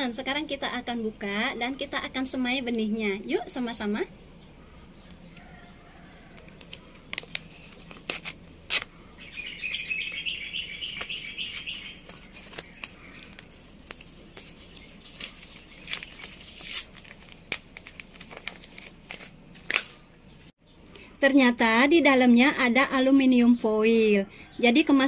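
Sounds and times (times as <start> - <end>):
seed packet tearing and crinkling: 6.3 - 9.8, 10.7 - 20.0.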